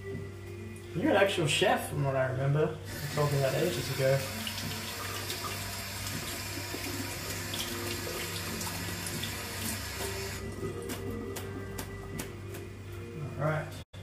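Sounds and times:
tap running into sink: 0:04.4 - 0:10.3.

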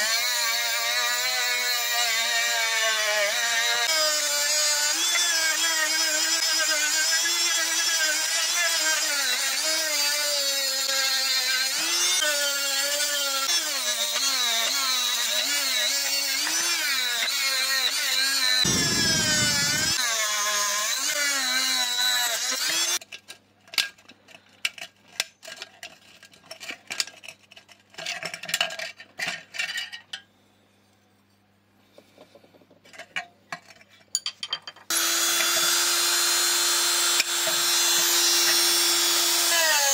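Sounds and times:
high-speed power tool whining: 0:11.7 - 0:23.0, 0:34.9 - 0:39.9.

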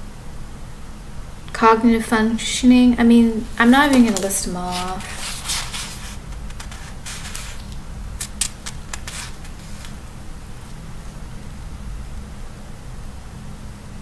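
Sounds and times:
steady low hum: 0:00.0 - 0:14.0
handling rustles and clicks: 0:03.5 - 0:10.1.

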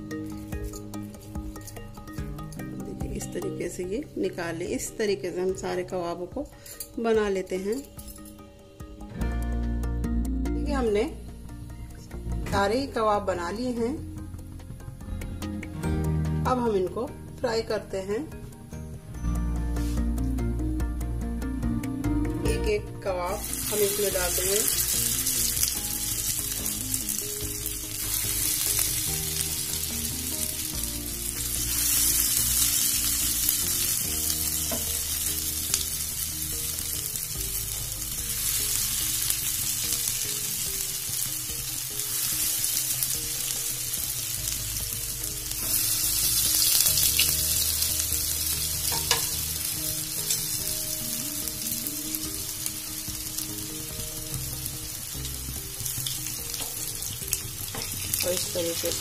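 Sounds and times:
food sizzling in hot oil: 0:23.1 - 0:59.0.

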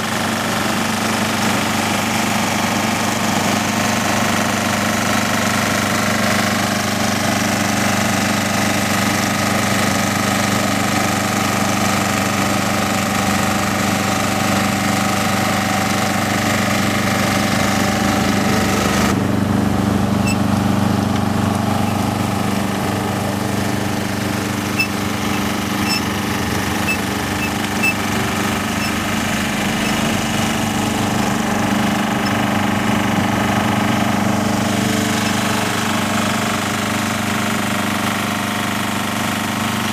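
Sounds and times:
machinery engine running: 0:00.0 - 0:39.9.

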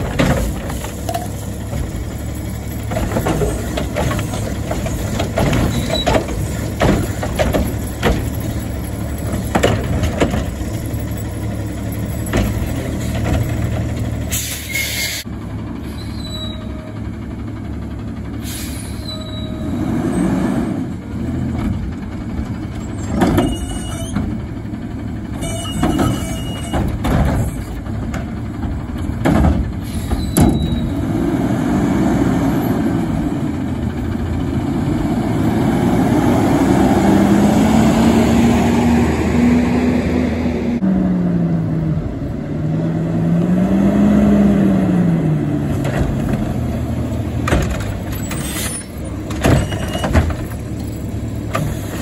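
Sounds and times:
metal clanks and knocks: 0:00.0 - 0:14.2, 0:21.6 - 0:24.4, 0:25.4 - 0:30.8, 0:47.4 - 0:51.9
garbage truck diesel engine: 0:00.0 - 0:52.0
air brake hiss: 0:14.3 - 0:15.2, 0:18.4 - 0:19.1.

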